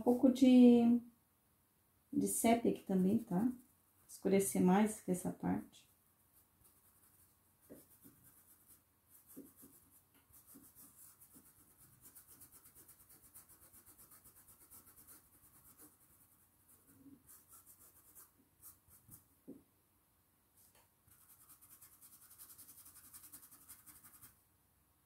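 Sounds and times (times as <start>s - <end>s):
paintbrush scratching on cloth: 2.7s - 4.2s, 6.2s - 19.3s, 20.6s - 24.4s.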